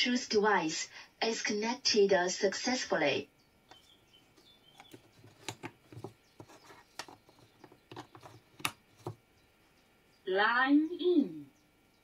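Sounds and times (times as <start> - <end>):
hands handling circuit board: 3.7 - 9.2.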